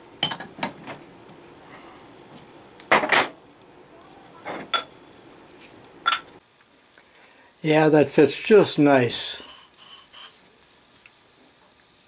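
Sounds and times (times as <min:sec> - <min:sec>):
metal clanks and clink: 0:04.5 - 0:05.2.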